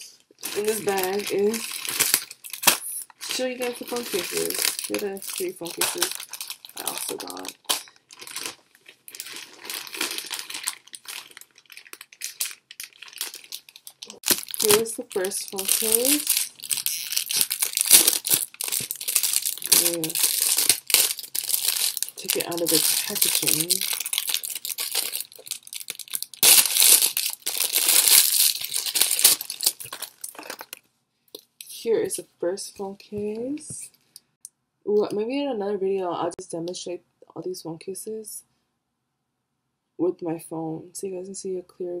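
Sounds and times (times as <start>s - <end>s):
plastic packaging crinkling: 0.4s - 31.5s.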